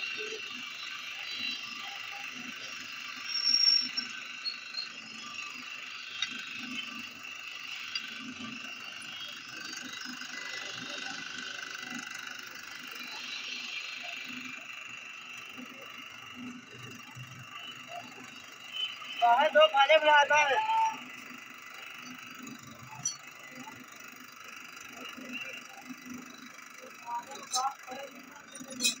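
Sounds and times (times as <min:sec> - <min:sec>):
drill press grinding into metal: 0:27.3 - 0:29.0.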